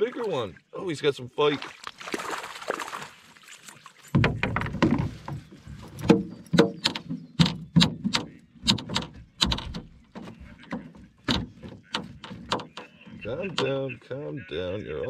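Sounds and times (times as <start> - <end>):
fish flopping in a net: 1.7 - 4.1.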